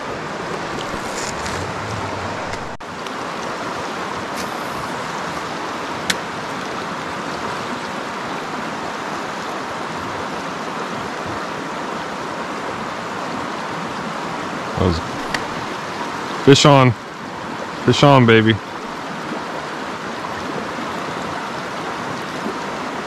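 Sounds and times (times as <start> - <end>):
river water rushing over rocks: 0.0 - 17.9, 18.6 - 23.0.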